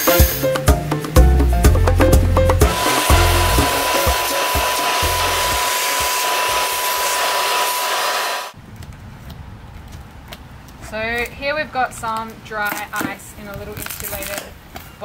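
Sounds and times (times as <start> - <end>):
music with a beat: 0.0 - 5.6
shop vacuum whining: 2.6 - 8.6.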